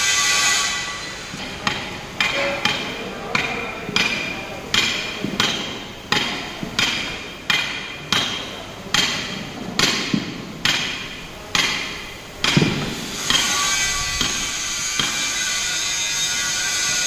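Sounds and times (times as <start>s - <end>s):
high-pitched grinding hiss and whine: 0.0s - 3.0s, 12.0s - 17.0s
hammer striking steel: 0.0s - 17.0s.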